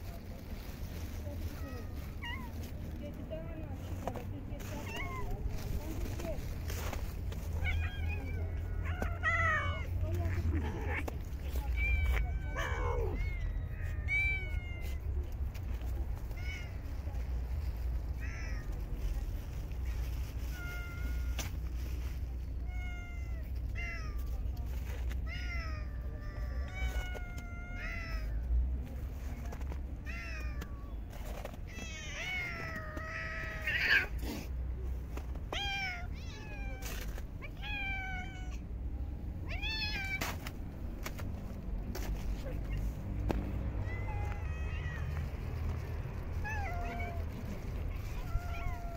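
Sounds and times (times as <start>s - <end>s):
cats meowing: 4.6s - 6.2s, 7.0s - 19.4s, 20.1s - 21.6s, 22.4s - 28.5s, 29.9s - 34.3s, 35.4s - 38.6s, 39.4s - 40.5s, 42.6s - 48.9s.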